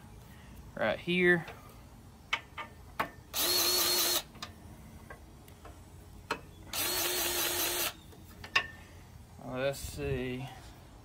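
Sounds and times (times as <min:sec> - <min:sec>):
cordless grease gun running: 0:03.4 - 0:04.3, 0:06.7 - 0:08.0.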